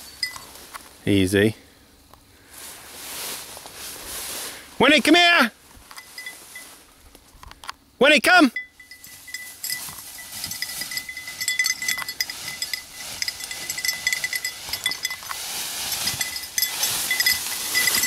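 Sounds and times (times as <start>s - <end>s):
dog collar bell jingling: 0.0s - 0.6s, 5.9s - 6.8s, 8.5s - 18.0s
dry brush crackling: 2.5s - 5.1s, 8.8s - 18.0s.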